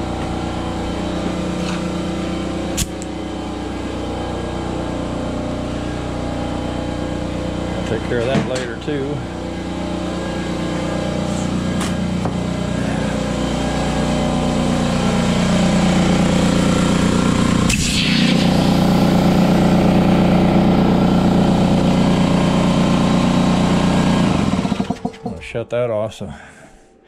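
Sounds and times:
air compressor humming: 0.0 - 25.6
brief air hiss: 17.7 - 18.6.

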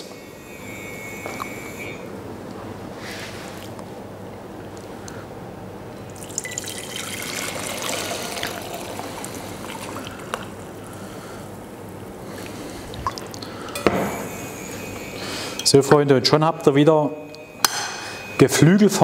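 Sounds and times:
liquid trickling into a glass jar: 6.1 - 11.0.

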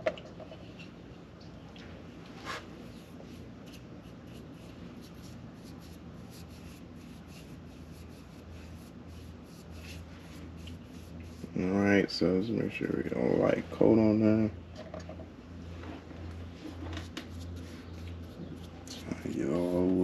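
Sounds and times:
steady low hum: 0.0 - 20.0
scratchy brush strokes: 2.4 - 11.7, 16.4 - 20.0.

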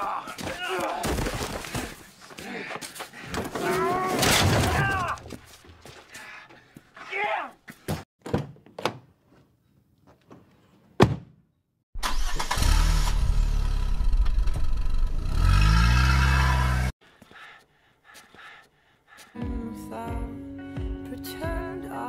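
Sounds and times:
engine starting and revving: 12.0 - 16.9.

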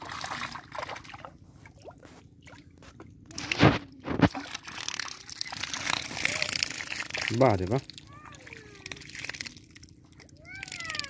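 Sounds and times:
muddy water sloshing: 0.0 - 11.0
heavy splashes: 3.4 - 11.0.

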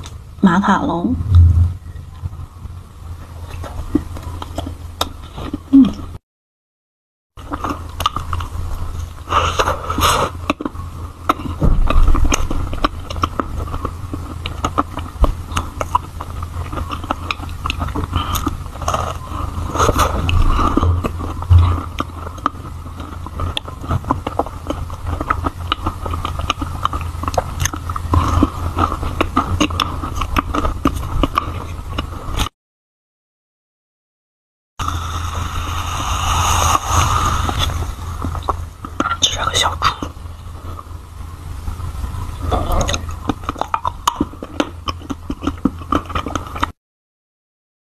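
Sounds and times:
steady low hum: 0.0 - 6.2, 7.4 - 32.5, 34.8 - 46.8
chewing and crunching: 3.2 - 6.2, 7.4 - 32.5, 37.5 - 46.8.

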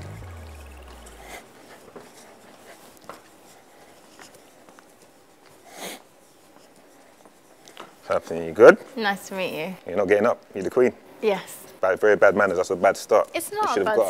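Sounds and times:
background music: 0.0 - 1.4.

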